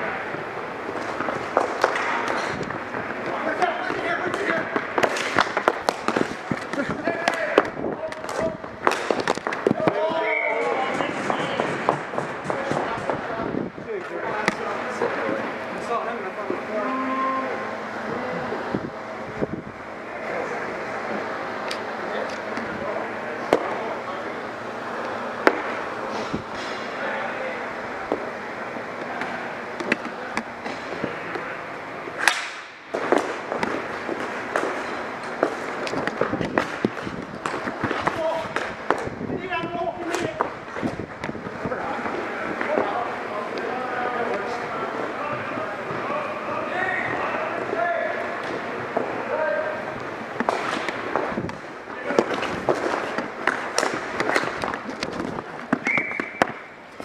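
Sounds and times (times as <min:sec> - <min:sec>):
hockey sticks clacking: 0:00.8 - 0:13.3, 0:25.0 - 0:27.0, 0:29.0 - 0:31.4, 0:32.0 - 0:43.7, 0:48.4 - 0:57.0.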